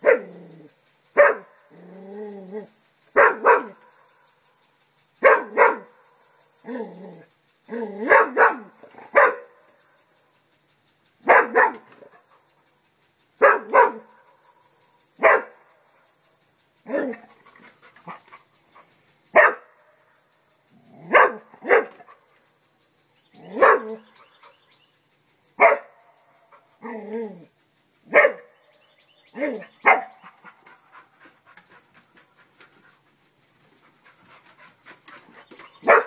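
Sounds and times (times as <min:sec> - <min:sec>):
dog barking: 0:00.0 - 0:00.4, 0:01.2 - 0:01.6, 0:03.2 - 0:03.9, 0:05.2 - 0:06.0, 0:08.0 - 0:09.6, 0:11.2 - 0:12.1, 0:13.4 - 0:14.2, 0:15.2 - 0:15.6, 0:19.3 - 0:19.8, 0:21.0 - 0:22.2, 0:23.4 - 0:24.6, 0:25.6 - 0:27.0, 0:28.1 - 0:28.6, 0:29.4 - 0:30.6, 0:35.8 - 0:36.0.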